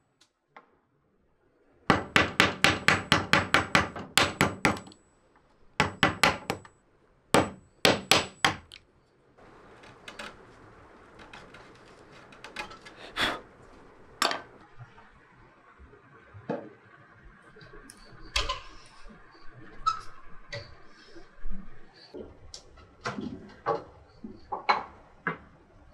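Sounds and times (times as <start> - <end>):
faint steady noise: 0.0 - 25.9
chisel striking wood: 1.9 - 5.0, 5.8 - 6.7, 7.4 - 8.8.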